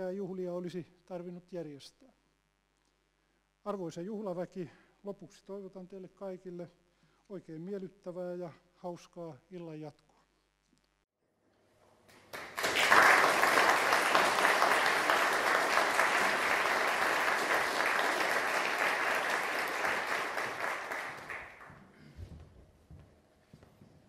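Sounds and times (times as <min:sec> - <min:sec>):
audience applauding: 0:12.1 - 0:21.8.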